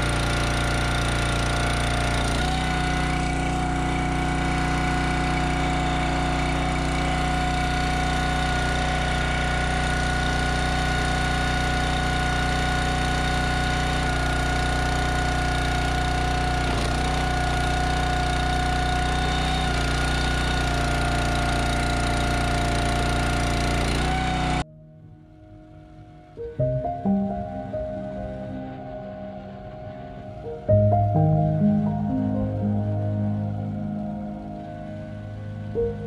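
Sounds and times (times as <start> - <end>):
gas engine running: 0.0 - 24.6
high whine: 24.6 - 36.0.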